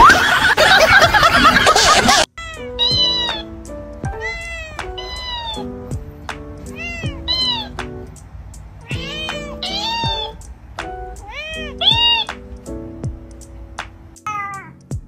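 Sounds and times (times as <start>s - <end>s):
meow-like vocal phrases: 2.4s - 3.5s, 4.1s - 5.7s, 6.7s - 7.7s, 8.8s - 10.4s, 11.2s - 12.3s, 14.3s - 14.8s.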